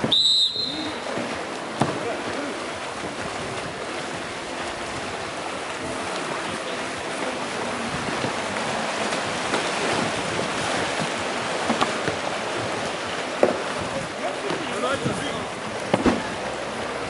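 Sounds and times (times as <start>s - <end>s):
fast-flowing river rushing: 0.0s - 17.0s
kayak paddles splashing: 0.0s - 17.0s.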